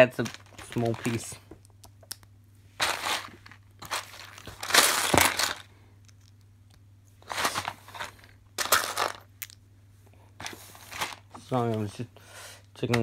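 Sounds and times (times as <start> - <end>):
plastic toy bricks rattling: 7.4 - 9.6.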